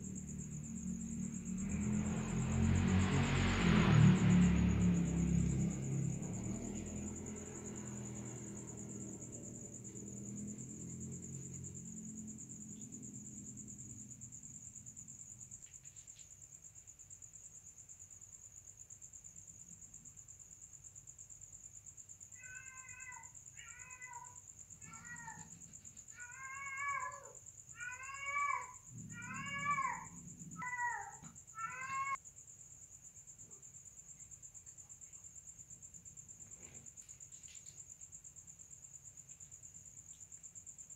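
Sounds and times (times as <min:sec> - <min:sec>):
high cricket trill: 0:00.0 - 0:40.9
cat yowling: 0:22.4 - 0:32.2.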